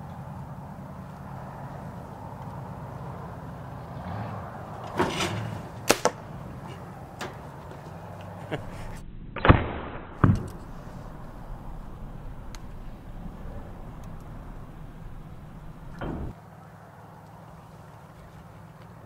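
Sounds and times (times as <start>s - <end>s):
bow shots snapping and thwacking: 5.8s - 6.8s, 9.4s - 15.2s.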